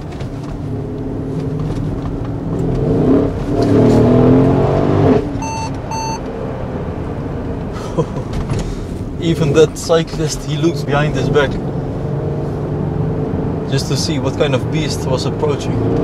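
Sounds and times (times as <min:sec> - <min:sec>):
car engine accelerating hard: 0:00.0 - 0:16.0
short electronic beeps: 0:05.4 - 0:06.2.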